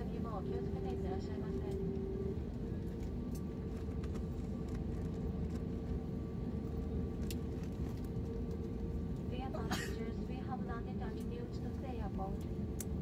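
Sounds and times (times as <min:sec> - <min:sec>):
aircraft cabin engine rush: 0:00.0 - 0:13.0
mid-pitched hum: 0:00.0 - 0:13.0.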